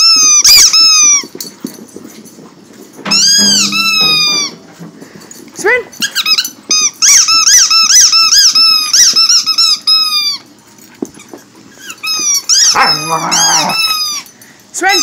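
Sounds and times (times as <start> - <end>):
squeaky rubber toy: 3.1 - 4.6, 6.1 - 10.4, 11.8 - 14.2.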